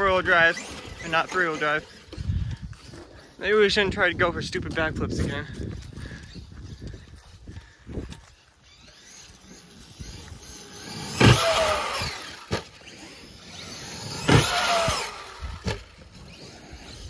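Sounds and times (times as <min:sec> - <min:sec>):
electric motor whining: 0:00.0 - 0:04.2, 0:05.0 - 0:17.0
toy truck hitting ground: 0:08.7 - 0:17.0.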